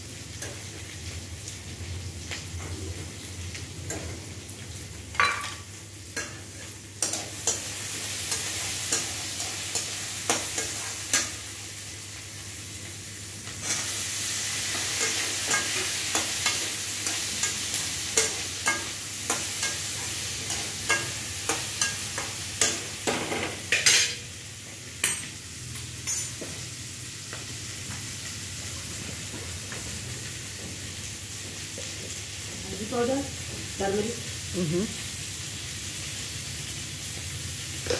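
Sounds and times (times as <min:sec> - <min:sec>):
food sizzling in a pan: 0:00.0 - 0:37.9
metal spatula tapping and scraping: 0:07.0 - 0:07.7, 0:08.3 - 0:11.4, 0:14.7 - 0:24.2.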